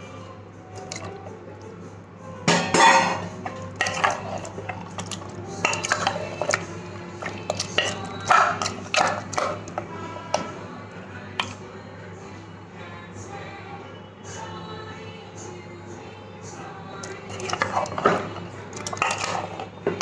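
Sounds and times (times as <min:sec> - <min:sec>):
spoon scraping and clinking pot: 0:00.8 - 0:01.3, 0:02.5 - 0:10.5, 0:17.0 - 0:20.0.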